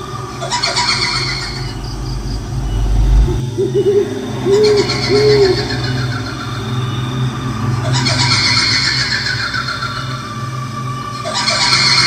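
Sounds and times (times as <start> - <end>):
low drone: 0.0 - 12.0
deep rumble: 0.2 - 6.2
owl hooting: 0.3 - 6.9.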